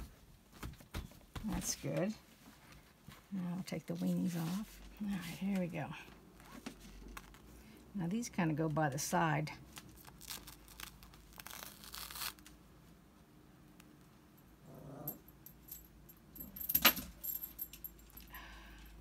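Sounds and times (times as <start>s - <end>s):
fabric rustling and crackling: 0.0s - 7.6s, 9.6s - 12.6s
sharp crinkle: 9.7s - 12.6s.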